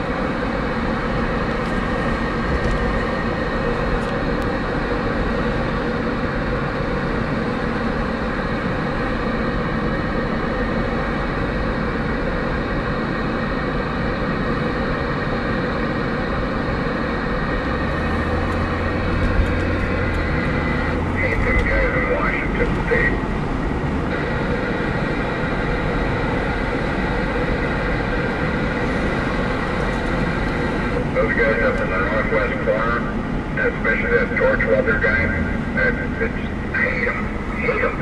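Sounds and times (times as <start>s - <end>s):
vehicle engine: 0.0s - 38.0s.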